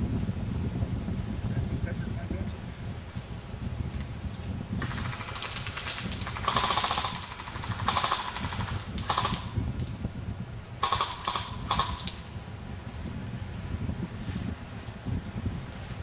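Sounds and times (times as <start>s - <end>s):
airsoft guns firing bursts: 4.8s - 9.9s, 10.8s - 12.3s.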